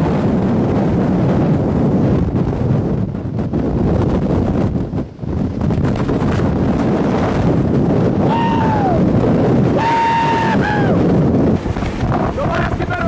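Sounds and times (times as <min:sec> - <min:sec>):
wind buffeting microphone: 0:00.0 - 0:13.0
person yelling high-pitched: 0:08.3 - 0:09.0.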